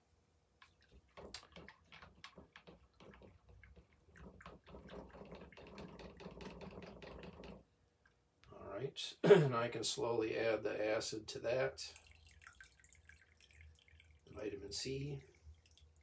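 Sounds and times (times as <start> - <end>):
liquid dripping and splashing: 0.6 - 8.2, 11.9 - 16.0.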